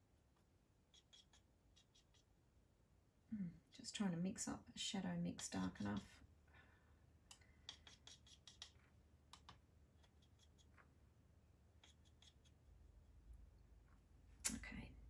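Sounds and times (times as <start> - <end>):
paintbrush ticks and scrapes: 0.0 - 2.4, 5.4 - 6.2, 7.6 - 11.0, 11.8 - 13.4.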